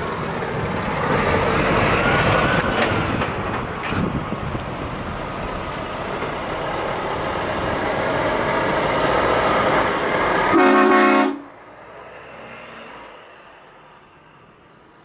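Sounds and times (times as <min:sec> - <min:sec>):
truck horn blast: 0:10.5 - 0:11.5.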